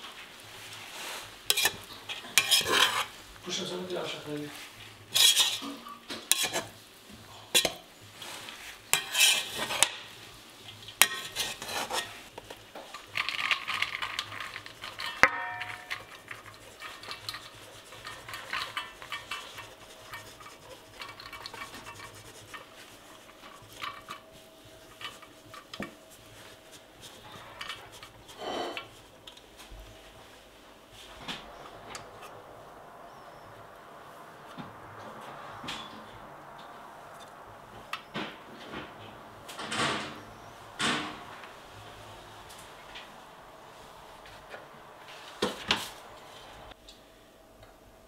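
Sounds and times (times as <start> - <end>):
metal utensils clattering on pot: 1.5 - 3.1, 5.1 - 6.7, 7.4 - 7.9, 8.9 - 10.0, 10.7 - 26.0, 27.1 - 29.0.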